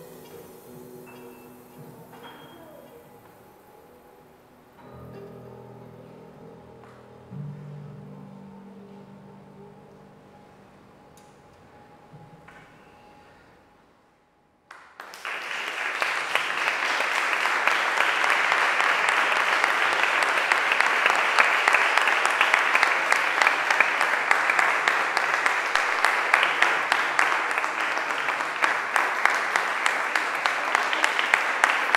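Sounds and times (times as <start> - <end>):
audience applauding: 14.7 - 31.9.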